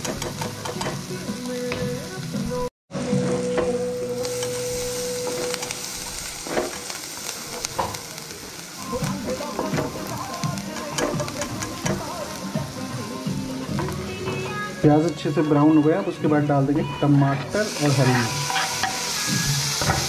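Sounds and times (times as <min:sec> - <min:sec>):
onions sizzling in a frying pan: 0:00.0 - 0:20.0
spatula scraping a pan: 0:17.5 - 0:20.0.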